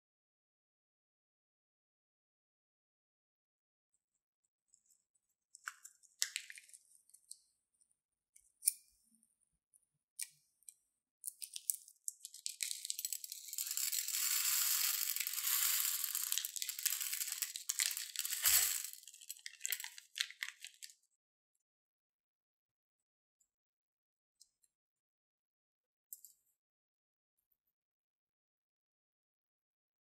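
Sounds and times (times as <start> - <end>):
plastic beads pouring into glass bowl: 12.1 - 20.9
plastic bag crinkling: 12.2 - 20.9.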